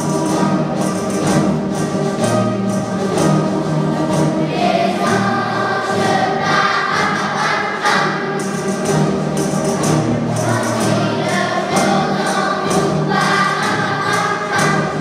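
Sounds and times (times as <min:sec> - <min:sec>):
choir singing with music: 0:00.0 - 0:15.0.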